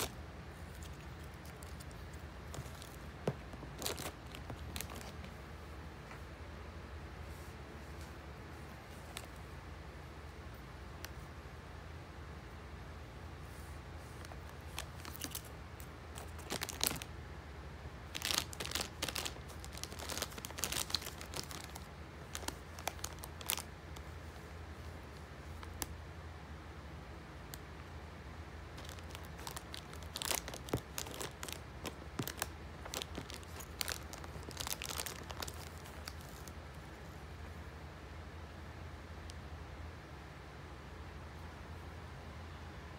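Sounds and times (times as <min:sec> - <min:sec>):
plastic bag crinkling: 0:00.0 - 0:05.3, 0:14.2 - 0:17.1, 0:18.0 - 0:23.7, 0:28.8 - 0:36.6.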